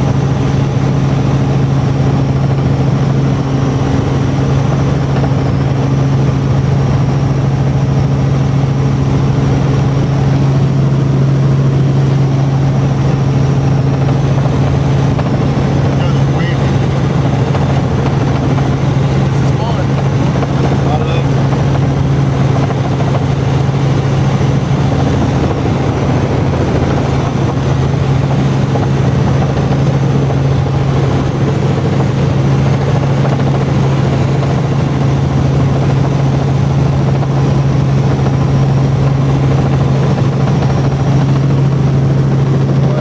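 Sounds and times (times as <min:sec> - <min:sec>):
helicopter engine and rotor drone: 0:00.0 - 0:43.0.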